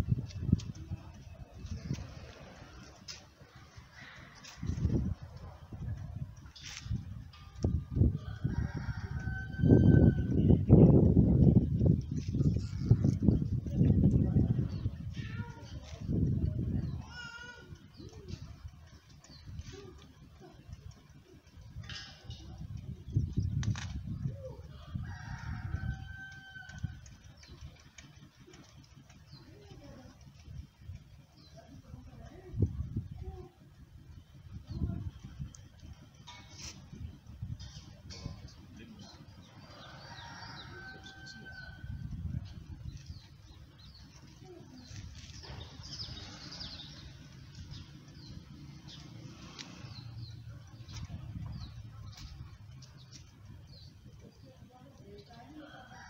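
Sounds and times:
rooster crowing: 0:08.2 - 0:10.4, 0:24.9 - 0:26.9, 0:39.7 - 0:41.9
small birds chirping: 0:10.0 - 0:56.0.

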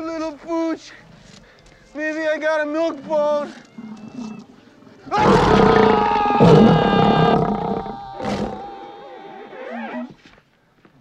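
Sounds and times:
harsh monster roar: 0:05.1 - 0:09.2.

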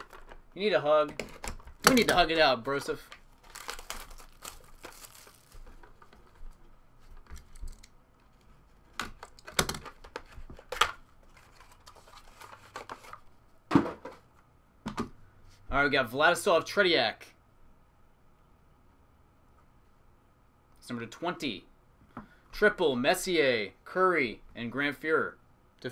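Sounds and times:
plastic clacks: 0:00.0 - 0:00.4, 0:08.9 - 0:11.0
plastic card cases clicking: 0:01.1 - 0:02.3, 0:09.0 - 0:11.0.

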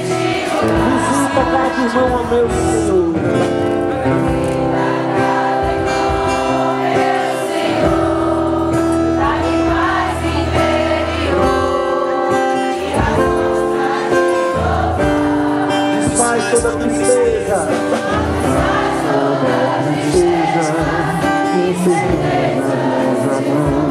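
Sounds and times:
choir singing: 0:00.0 - 0:23.9
sustained instrumental accompaniment: 0:00.0 - 0:23.9.

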